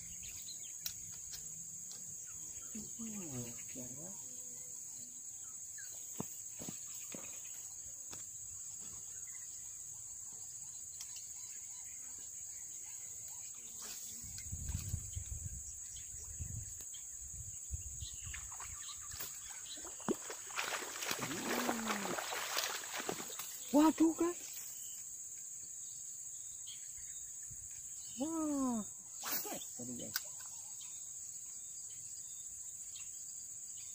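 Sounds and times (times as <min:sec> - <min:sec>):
insect chorus: 0:00.0 - 0:33.9.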